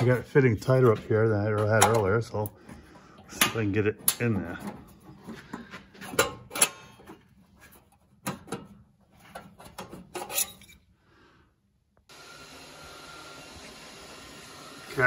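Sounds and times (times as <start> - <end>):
metal scraping: 0.0 - 8.0, 9.1 - 10.9.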